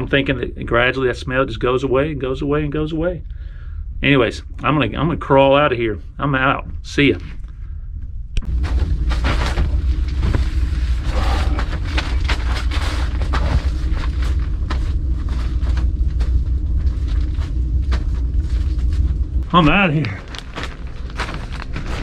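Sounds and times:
camera jostling rumble: 8.3s - 22.0s
crawling on plastic sheeting: 19.5s - 22.0s.

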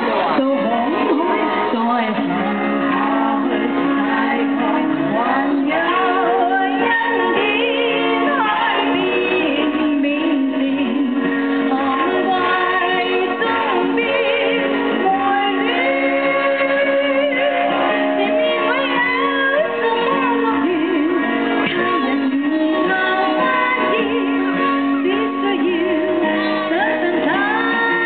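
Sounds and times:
instrumental accompaniment of chords: 0.0s - 28.0s
woman singing slow song: 0.0s - 28.0s.

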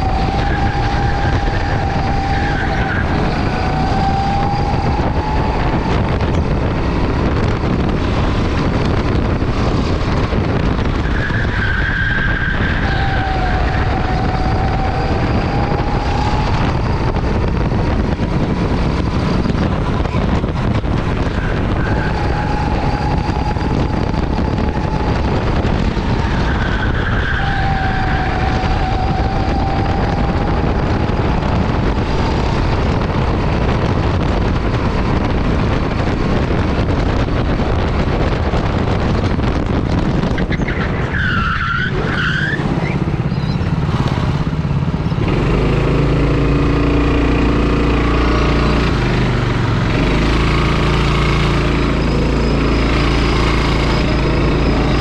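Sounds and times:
go-kart engine: 0.0s - 55.0s
tire squeal: 0.0s - 55.0s
wind and road noise: 0.0s - 55.0s.

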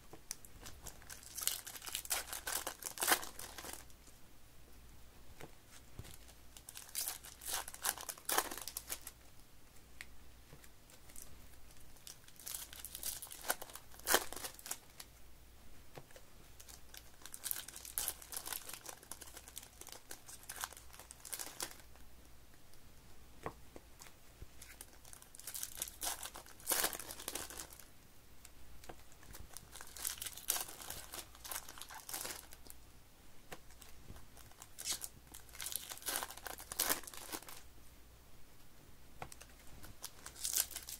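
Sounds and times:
foil wrappers tearing and crinkling: 1.0s - 3.8s, 6.1s - 9.2s, 12.0s - 15.0s, 16.6s - 21.9s, 24.7s - 27.8s, 29.3s - 32.6s, 34.4s - 37.6s, 40.0s - 40.9s.

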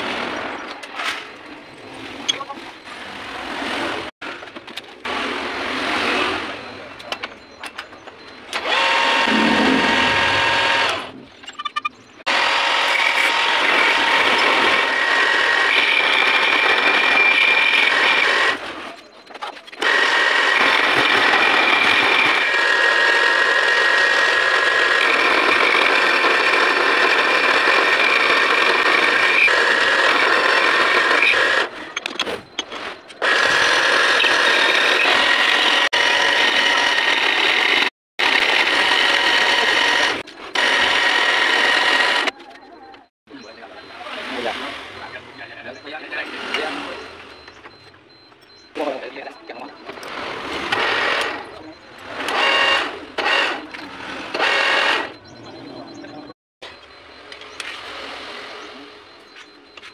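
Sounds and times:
milling machine with ringing whine: 6.7s - 18.6s.

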